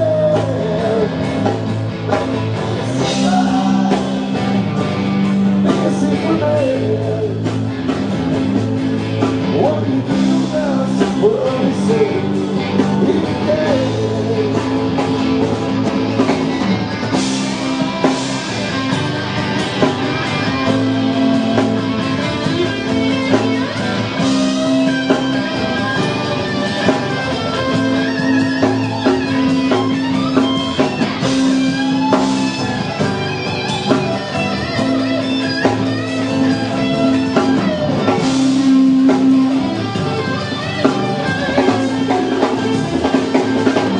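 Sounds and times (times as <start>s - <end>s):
drums: 0.0s - 43.9s
electric guitar: 0.0s - 43.9s.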